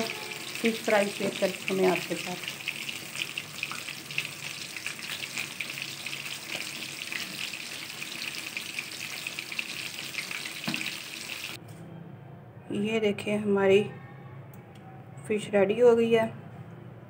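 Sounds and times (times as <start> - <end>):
oil sizzling while deep-frying: 0.0 - 11.6.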